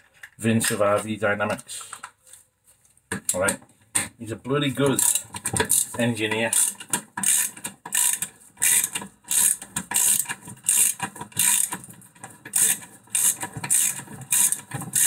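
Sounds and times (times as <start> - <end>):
ratchet wrench clicking: 5.0 - 5.9, 6.5 - 11.8, 12.5 - 15.0.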